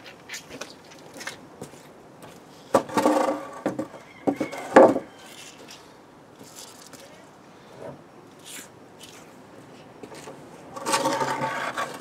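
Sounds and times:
wooden pallet scraping: 2.7 - 5.1, 10.2 - 12.0
wood knocking on paving: 2.8 - 5.1.

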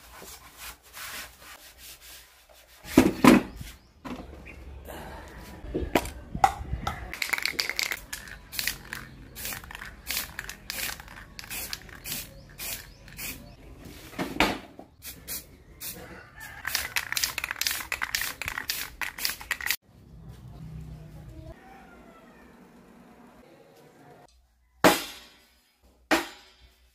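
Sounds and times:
spray can hissing bursts: 7.8 - 13.6, 15.0 - 16.0, 16.6 - 19.8.

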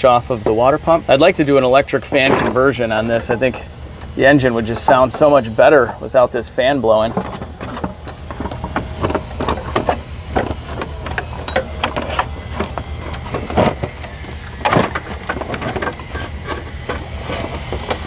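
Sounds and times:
steady low hum: 0.0 - 18.0
metallic clanks and clicks: 10.8 - 12.3.

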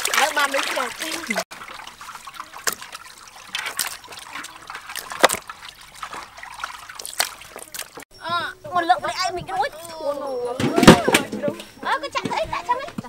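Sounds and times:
water trickling and dripping: 0.0 - 8.1.

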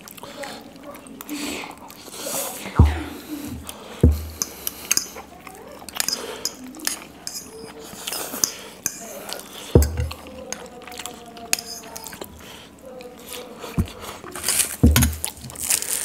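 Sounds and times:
cutlery clinking on ceramic bowls: 4.0 - 5.3, 5.9 - 12.3, 13.8 - 15.7
dull knocks: 14.8 - 15.3.

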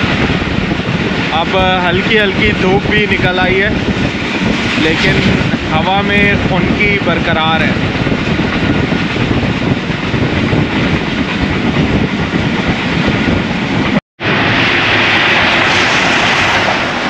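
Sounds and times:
train wheels clattering on rails: 7.6 - 14.0.

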